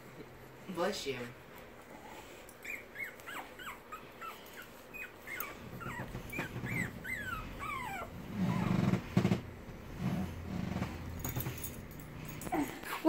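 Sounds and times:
dog whimpering: 2.6 - 9.0.

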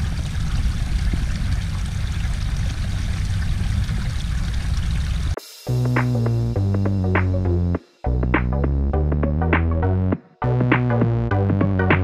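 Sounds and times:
creek water trickling over rocks: 0.0 - 5.4.

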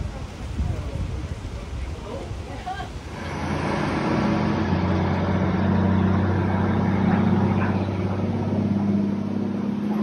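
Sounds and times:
diesel truck engine idling: 3.1 - 10.0.

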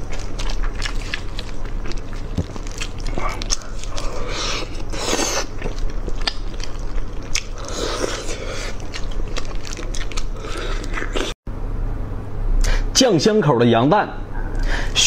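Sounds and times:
person chewing meat: 0.0 - 11.4.

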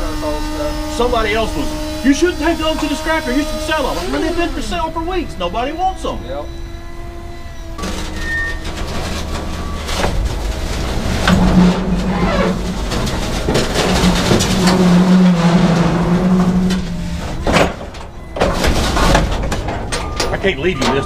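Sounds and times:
forklift engine hum: 0.0 - 21.0
metal clanks and knocks: 7.7 - 21.0.

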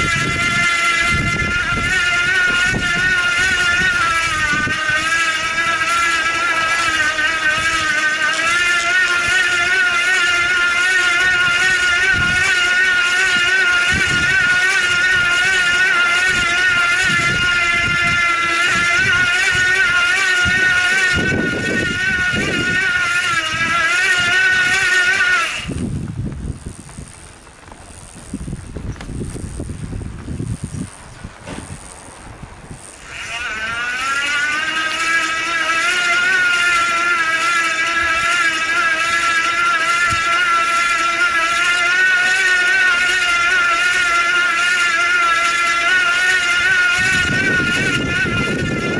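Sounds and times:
electric motor whining: 0.0 - 48.9.

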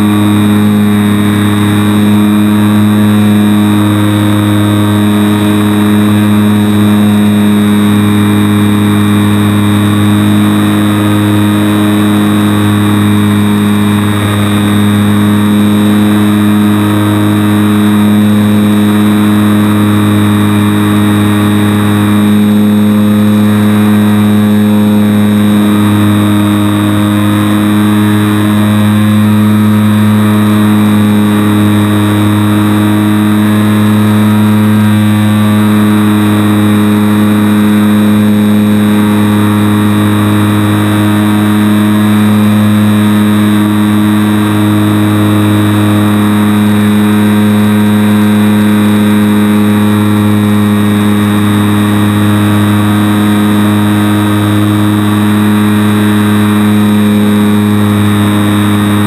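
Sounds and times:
model plane motor and propeller drone: 0.0 - 59.0.

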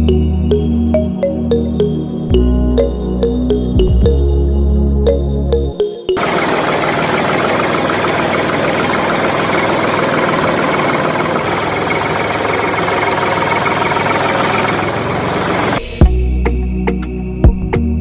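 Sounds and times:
wheel spinning in sand: 6.2 - 16.0.

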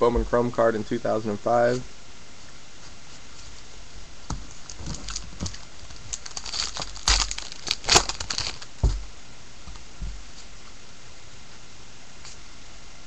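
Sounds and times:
foil wrapper tearing and crackling: 4.5 - 8.9.

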